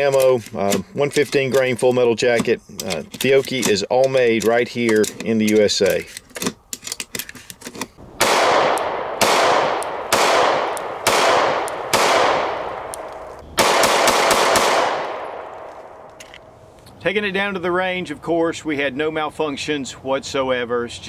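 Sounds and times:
pistol shots echoing: 8.2 - 16.1
cartridges clicking into magazine: 9.7 - 13.3.

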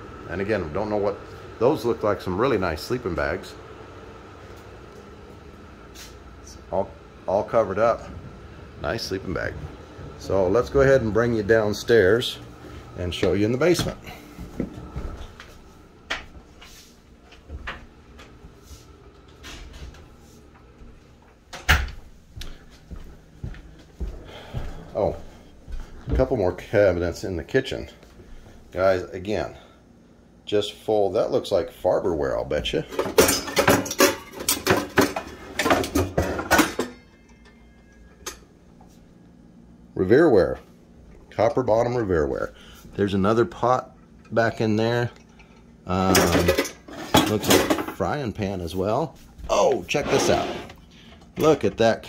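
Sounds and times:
faint knocks and shuffles: 12.4 - 26.7
pots and pans clanking: 32.9 - 38.5, 45.4 - 48.0.

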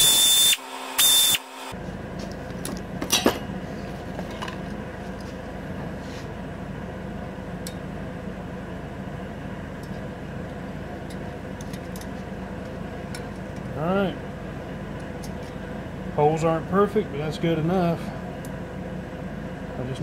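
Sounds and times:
steady low hum: 1.7 - 20.0
metal clank: 2.6 - 3.6.

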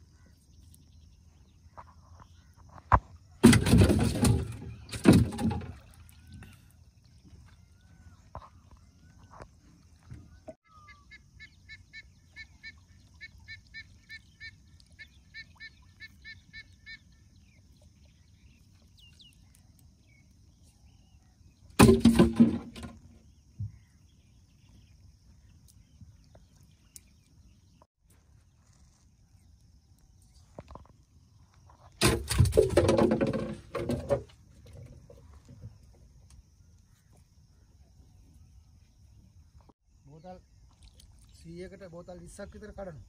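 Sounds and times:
bird calling: 6.0 - 19.7.

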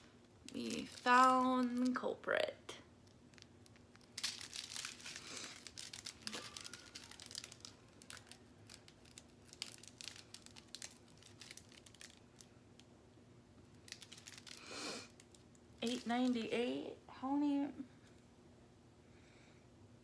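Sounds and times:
plastic bags crinkling: 0.0 - 2.2, 3.0 - 12.9, 13.7 - 16.5.

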